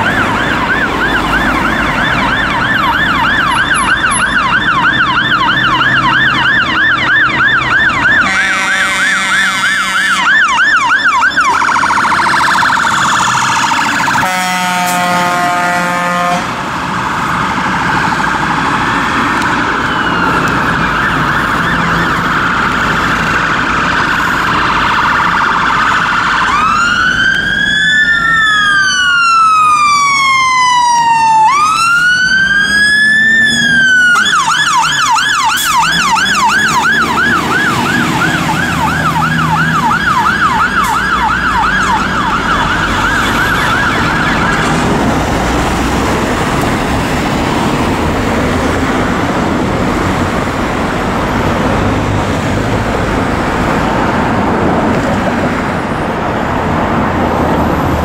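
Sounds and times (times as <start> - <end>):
fire engine siren yelp: 0.0 - 58.0
siren wail: 0.0 - 58.0
airhorn blast: 8.2 - 10.3, 14.2 - 16.6.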